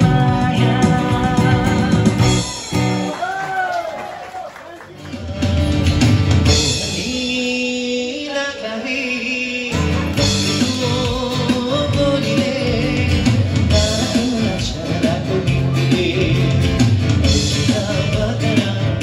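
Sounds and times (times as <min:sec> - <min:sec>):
person singing long notes: 0:00.0 - 0:02.7
instrumental accompaniment: 0:04.9 - 0:08.0, 0:09.7 - 0:19.0.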